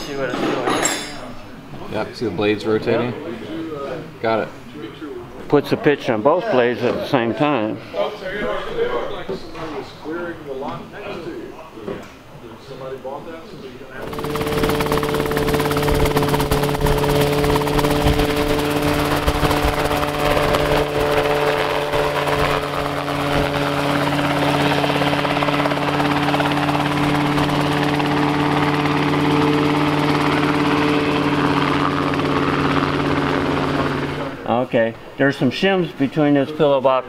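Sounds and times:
helicopter engine and rotor drone: 14.0s - 34.5s.

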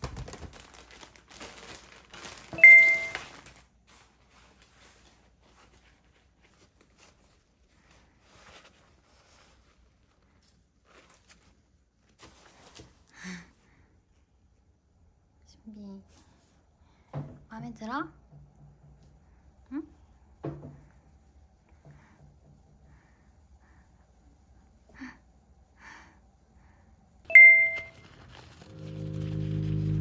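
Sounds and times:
plastic packaging crinkling: 0.0s - 5.2s, 28.0s - 29.4s
faint handling sounds: 0.3s - 14.7s
bell-like ding: 2.6s - 3.2s, 27.3s - 28.0s.

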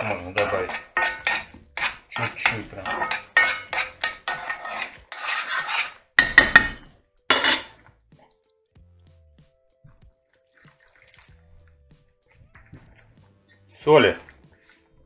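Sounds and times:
metal spoon scraping a pan: 0.0s - 7.8s
spoon clattering on a plate: 0.4s - 4.7s, 6.2s - 7.8s
spoon tapping: 6.2s - 7.8s.

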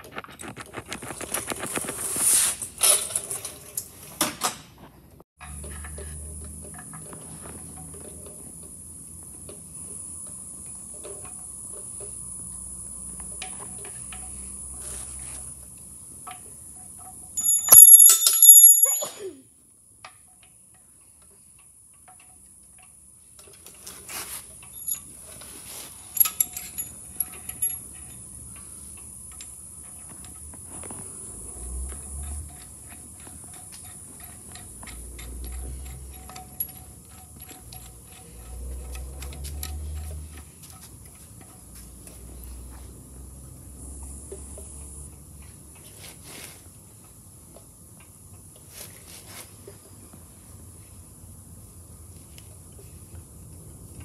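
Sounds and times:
loud ringing metal clang: 17.4s - 19.3s.

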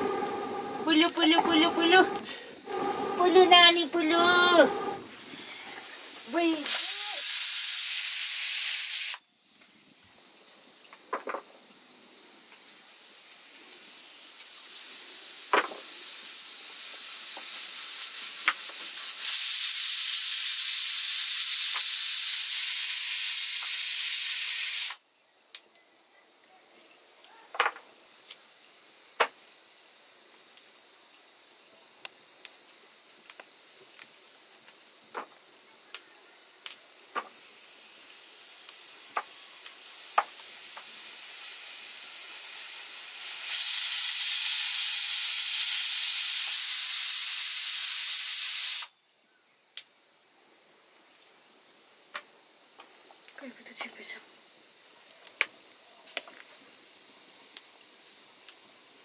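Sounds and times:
pressure cooker steam hissing: 0.0s - 9.2s, 12.8s - 25.0s, 36.9s - 48.9s.

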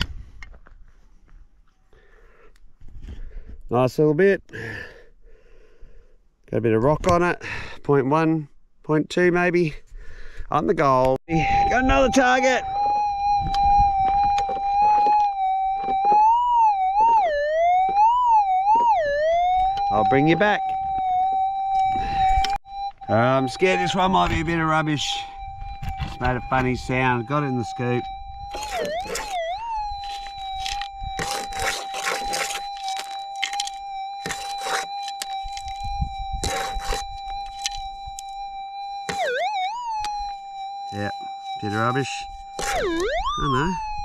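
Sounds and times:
metal detector warbling tone: 11.3s - 44.0s
dirt and rock crunching in scoop: 26.0s - 38.4s, 40.2s - 43.6s.

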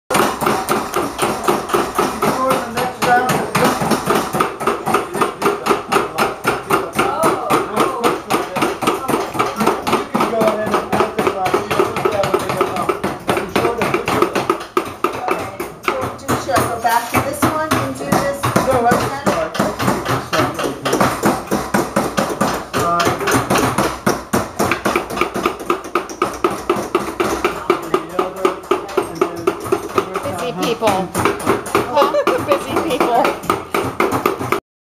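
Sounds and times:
hammers striking sheet metal: 0.1s - 34.6s.

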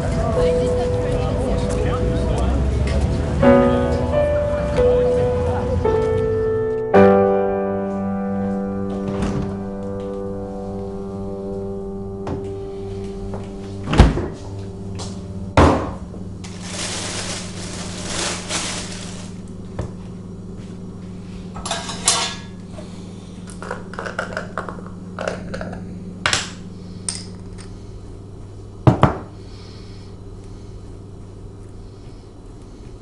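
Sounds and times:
low steady hum: 0.0s - 33.0s
dishes and cutlery clinking: 21.6s - 22.6s
knocks on counter: 28.9s - 29.3s.

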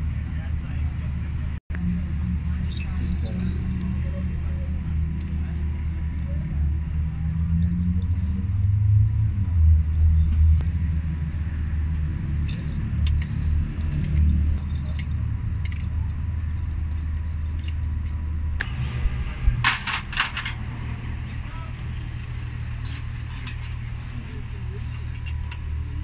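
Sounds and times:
metal clatter: 2.6s - 3.9s, 7.2s - 9.3s, 12.4s - 18.3s
spanner clinking on metal: 2.6s - 4.0s, 5.2s - 9.3s, 12.4s - 18.3s, 24.9s - 25.9s.

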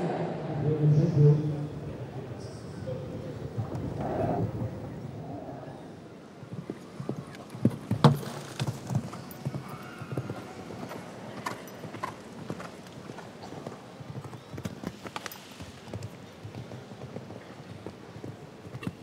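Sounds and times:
horse hooves cantering on sand: 6.5s - 19.0s.

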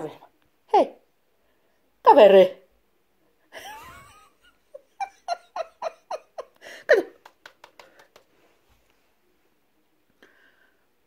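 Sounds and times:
woman laughing: 3.5s - 7.4s
faint breaths: 10.1s - 11.0s.

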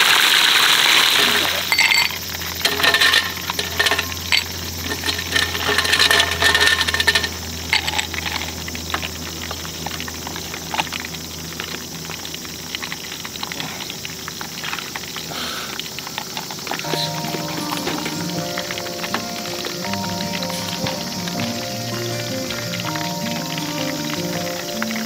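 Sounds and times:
liquid poured over ice: 0.0s - 25.0s
ice cubes clinking in glass: 0.9s - 9.2s.

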